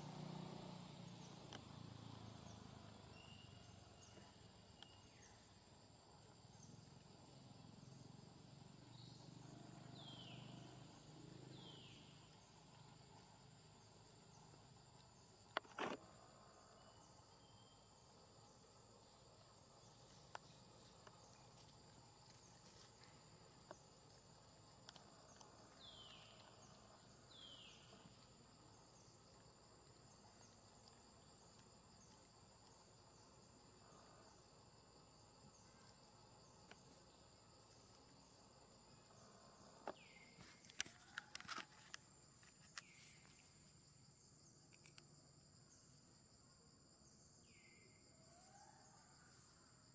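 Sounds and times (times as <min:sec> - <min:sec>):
faint clicks: 0:44.6 - 0:45.1.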